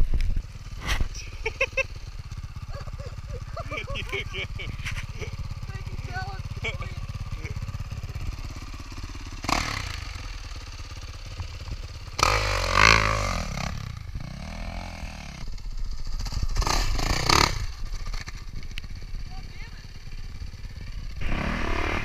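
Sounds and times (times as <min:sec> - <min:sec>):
dirt bike engine revving: 0:02.6 - 0:18.4, 0:20.7 - 0:22.0
wheel digging into sand: 0:21.2 - 0:22.0.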